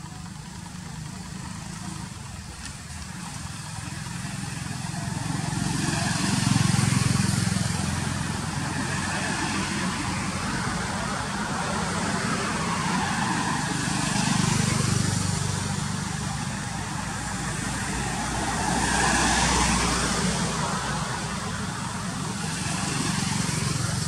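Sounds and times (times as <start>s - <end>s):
vehicles passing: 0.0s - 24.0s.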